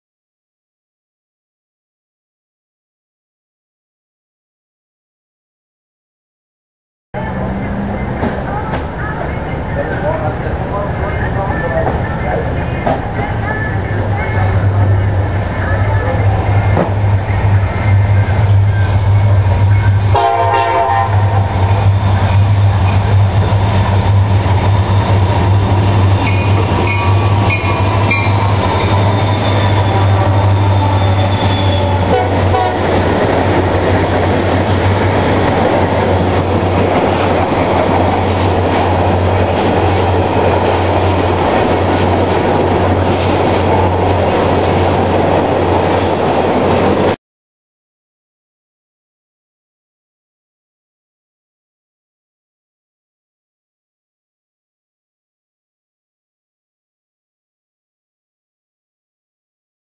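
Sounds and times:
train wheels on rails: 7.2s - 20.2s, 21.4s - 47.2s
diesel locomotives running past: 7.2s - 47.2s
locomotive horn: 20.1s - 21.9s, 25.9s - 33.0s.

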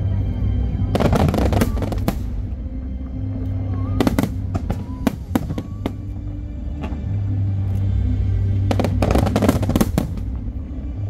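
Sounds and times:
fireworks bangs and crackles: 0.9s - 2.6s, 3.6s - 7.2s, 8.7s - 10.6s.

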